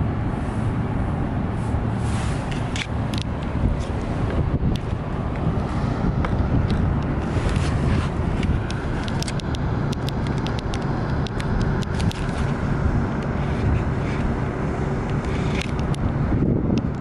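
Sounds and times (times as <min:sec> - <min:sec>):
boat engine rumble: 0:00.0 - 0:17.0
sharp clicks: 0:08.4 - 0:12.6.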